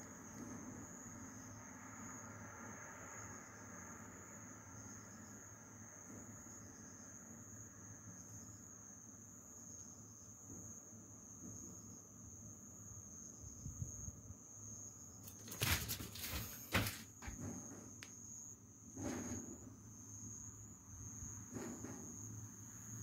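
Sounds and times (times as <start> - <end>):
high-pitched insect trill: 0.0 - 16.8, 17.9 - 23.0
rustling: 15.3 - 17.5.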